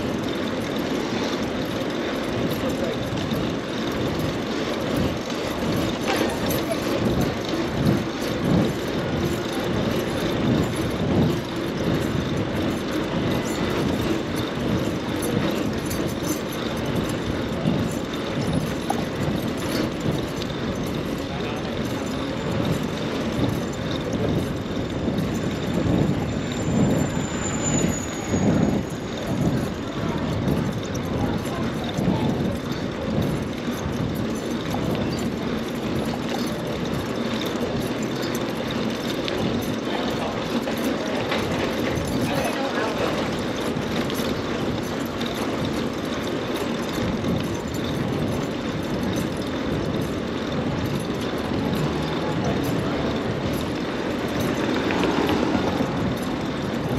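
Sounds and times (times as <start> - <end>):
street traffic: 0.0 - 56.9
wind buffeting microphone: 0.0 - 56.9.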